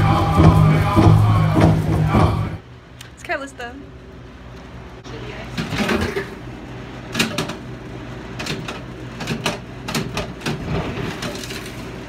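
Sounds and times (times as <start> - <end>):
low hum: 0.0 - 9.1.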